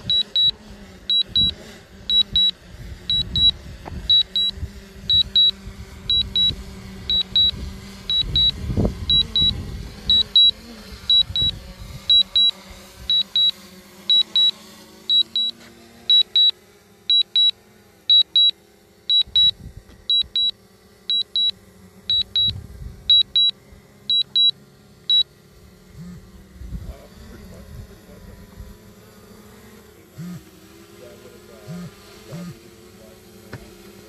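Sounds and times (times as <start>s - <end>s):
high-pitched electronic double beeps: 0.0s - 0.5s, 2.1s - 2.5s, 3.1s - 3.5s, 4.1s - 4.5s, 5.1s - 5.5s, 6.1s - 6.5s, 7.1s - 7.5s, 8.1s - 10.5s, 12.1s - 12.5s, 13.1s - 13.5s, 16.1s - 16.5s, 17.1s - 17.5s, 18.1s - 18.5s, 19.1s - 19.5s, 20.1s - 20.5s, 22.1s - 22.5s, 23.1s - 23.5s, 24.1s - 24.5s
drone propellers humming: 0.0s - 34.0s.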